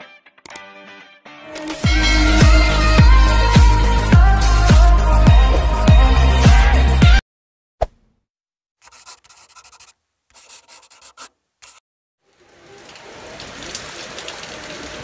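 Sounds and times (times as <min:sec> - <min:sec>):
music: 0:00.0 - 0:07.2
click: 0:00.4 - 0:00.6
short scratchy rubbing: 0:08.8 - 0:11.8
rain falling on a street: 0:12.2 - 0:15.0.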